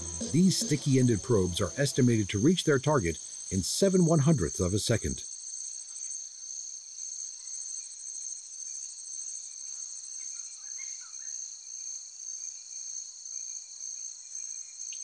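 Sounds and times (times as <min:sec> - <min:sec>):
faint chirps: 0:00.0 - 0:04.5
insects trilling: 0:00.0 - 0:15.0.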